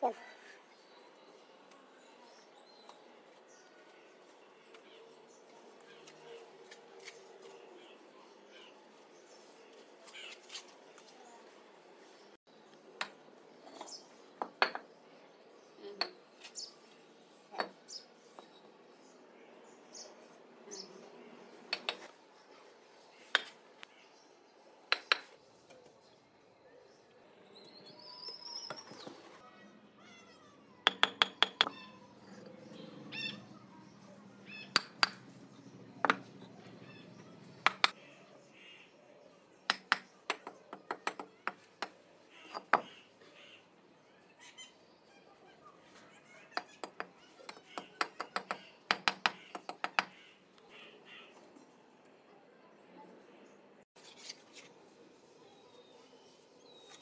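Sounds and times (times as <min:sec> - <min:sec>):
bricks knocking and clinking: 0:13.8 - 0:14.9, 0:30.9 - 0:31.8, 0:34.7 - 0:35.3, 0:36.0 - 0:36.5, 0:37.6 - 0:38.0
hammer tapping bricks: 0:13.8 - 0:14.9, 0:21.7 - 0:22.1, 0:23.3 - 0:23.6, 0:24.9 - 0:25.4, 0:30.8 - 0:31.9, 0:34.7 - 0:35.4, 0:36.0 - 0:36.6, 0:37.6 - 0:38.0, 0:39.7 - 0:42.9, 0:46.6 - 0:50.2.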